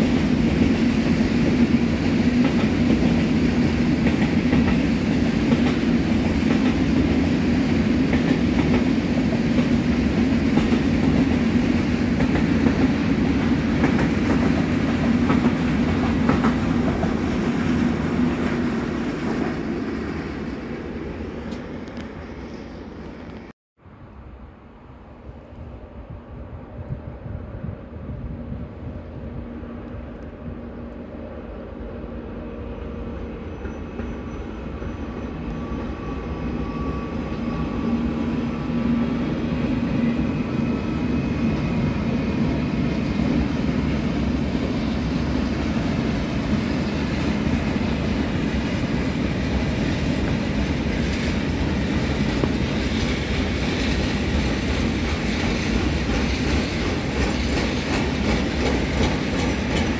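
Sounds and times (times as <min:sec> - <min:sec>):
electric locomotive passing: 0:00.0 - 0:59.9
wheels clacking over rail joints: 0:46.8 - 0:59.9.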